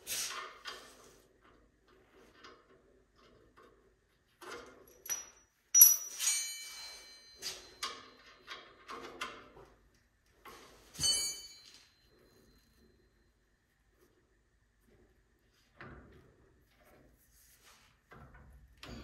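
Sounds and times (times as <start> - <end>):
wrench clinking against steel: 4.8 - 8.6, 11.0 - 12.1.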